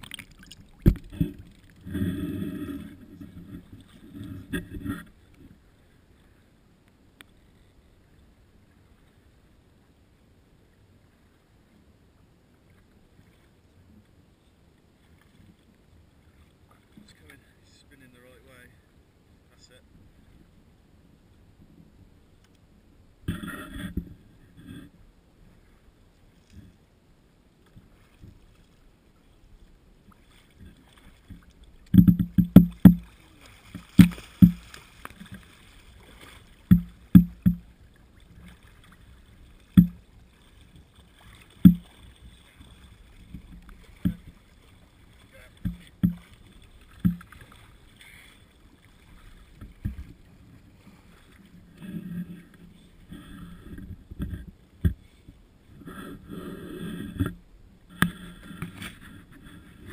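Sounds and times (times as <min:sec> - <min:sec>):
water slapping against boat hull: 0:00.0 - 0:04.9, 0:30.1 - 0:51.5
faint water sloshing: 0:00.0 - 0:06.6, 0:12.5 - 0:20.6, 0:21.3 - 0:59.9.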